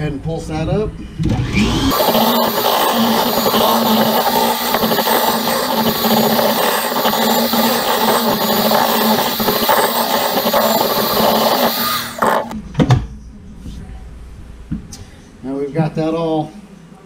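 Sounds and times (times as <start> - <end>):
electric hand mixer running: 1.3 - 12.6.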